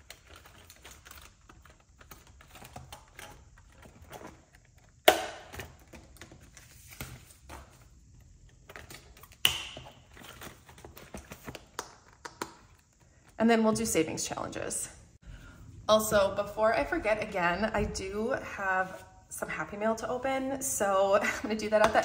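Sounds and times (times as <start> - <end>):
plastic envelopes and bills rustling: 0.0 - 5.0, 5.7 - 13.4.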